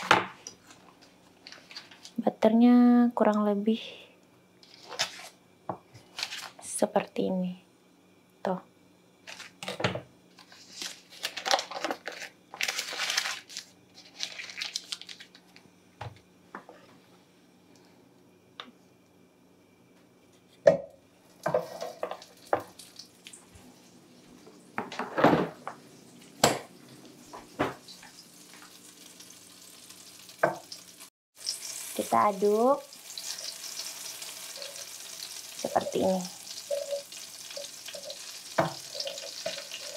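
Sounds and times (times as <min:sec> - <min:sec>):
wrapper rustling: 0:00.6 - 0:02.2, 0:06.0 - 0:06.6, 0:09.2 - 0:09.8, 0:10.4 - 0:15.6
butter sizzling: 0:21.3 - 0:24.9, 0:25.7 - 0:39.9.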